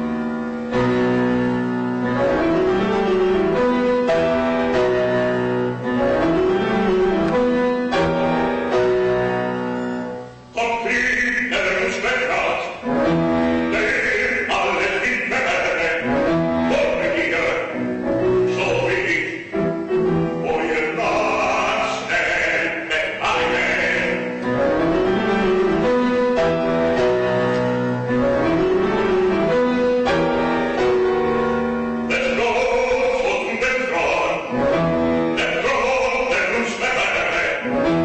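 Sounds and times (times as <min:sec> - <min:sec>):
piano and bowed strings: 0:00.0 - 0:38.0
operatic singing: 0:10.5 - 0:12.9, 0:13.5 - 0:19.5, 0:20.2 - 0:25.9, 0:32.0 - 0:38.0.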